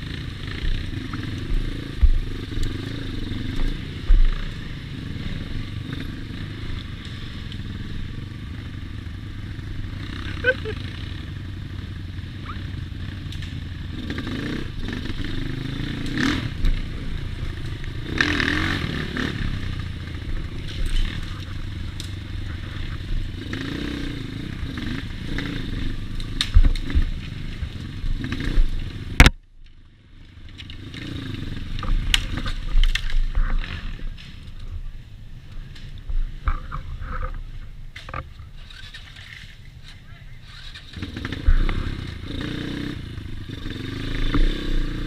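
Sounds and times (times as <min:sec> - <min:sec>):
motorcycle engine revving: 0:00.0 - 0:34.8, 0:40.4 - 0:45.0
bike clattering and stones: 0:19.8 - 0:23.3, 0:26.0 - 0:34.9, 0:35.6 - 0:42.2.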